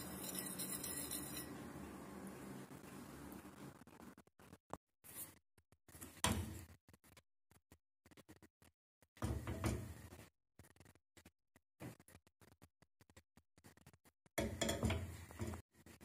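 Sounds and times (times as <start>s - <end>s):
kitchen knocks and clatters: 6.1s - 6.7s, 9.2s - 10.1s, 14.4s - 15.6s.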